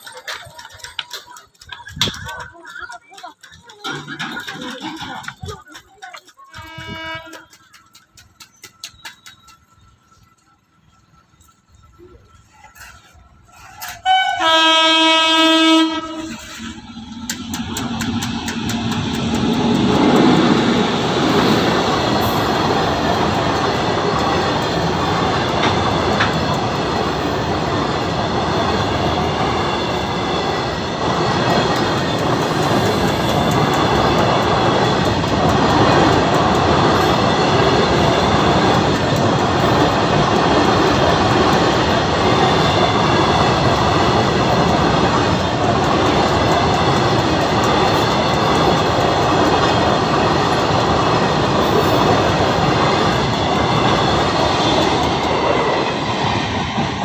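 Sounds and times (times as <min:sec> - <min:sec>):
freight train wheels clattering: 0:00.0 - 0:57.0
high wheel squeal: 0:42.0 - 0:44.3.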